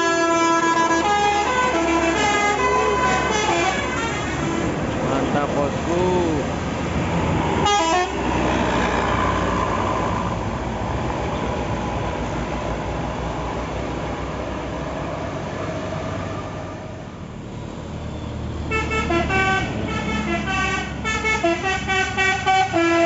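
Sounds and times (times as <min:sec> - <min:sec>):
multi-tone musical bus horn: 0:00.0 - 0:04.9, 0:07.6 - 0:08.3, 0:18.7 - 0:23.0
passing coach engine and tyres: 0:00.0 - 0:23.0.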